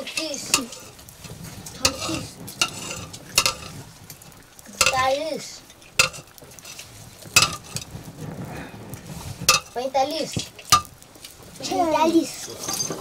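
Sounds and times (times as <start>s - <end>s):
ladle stirring food in a pot: 0.0s - 11.7s
low bubbling hiss: 0.0s - 13.0s
ladle knocking against pot: 1.9s - 3.8s, 6.0s - 6.7s, 7.4s - 7.9s, 10.7s - 11.0s.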